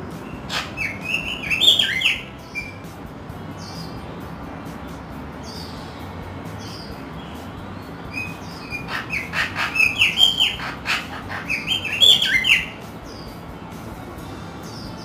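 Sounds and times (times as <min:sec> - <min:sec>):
parrot chirping: 0:00.2 - 0:02.8, 0:07.8 - 0:13.3.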